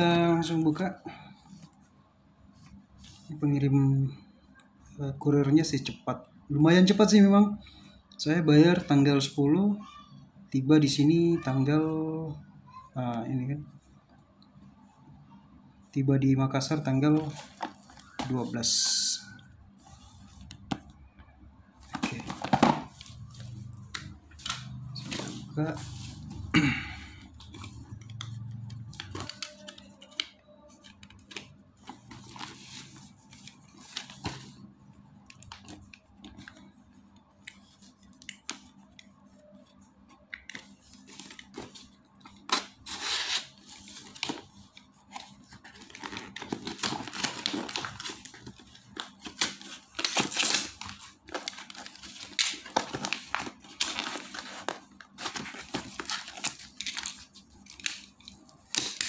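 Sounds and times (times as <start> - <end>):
plastic wrap tearing and crinkling: 45.1 - 59.0.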